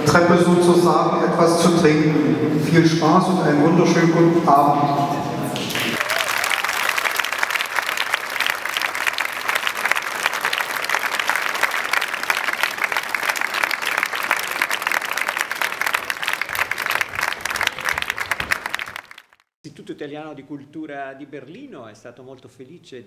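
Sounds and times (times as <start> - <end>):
audience applauding: 5.6 - 19.5.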